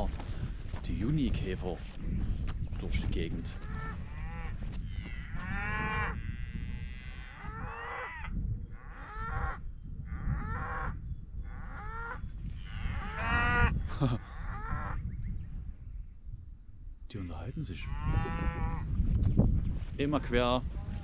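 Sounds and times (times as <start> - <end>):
cattle mooing: 3.7 - 8.3, 11.6 - 13.7, 17.9 - 18.9.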